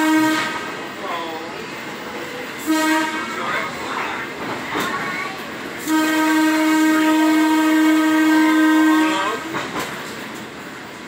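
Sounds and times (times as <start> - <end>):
train horn blast: 0.0 - 0.8, 2.6 - 3.5, 5.8 - 9.5
rumble of rolling rail cars: 0.0 - 11.0.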